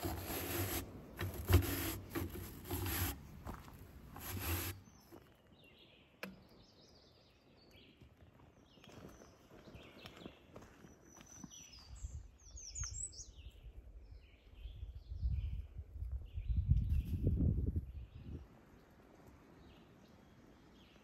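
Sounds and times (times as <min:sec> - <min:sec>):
shoe scrubbing on stiff bristles: 0:00.0 - 0:04.9
faint birdsong chirps: 0:04.3 - 0:21.0.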